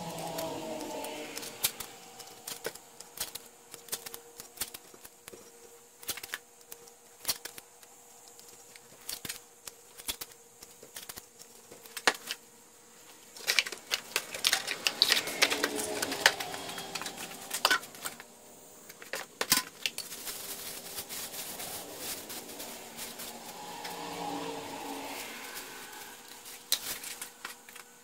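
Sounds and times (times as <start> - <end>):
masking tape tearing: 0.0 - 5.3, 6.0 - 12.4, 13.4 - 18.2.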